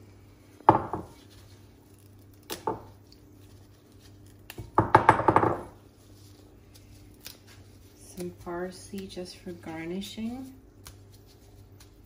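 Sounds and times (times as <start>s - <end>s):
kitchen items knocking and clattering: 0.7s - 1.1s, 4.8s - 5.8s.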